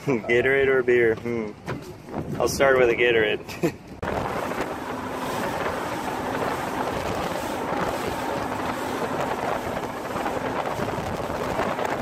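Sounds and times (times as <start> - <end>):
wind buffeting microphone: 1.5 - 3.2, 4.0 - 12.0
water rushing along hull: 3.9 - 12.0.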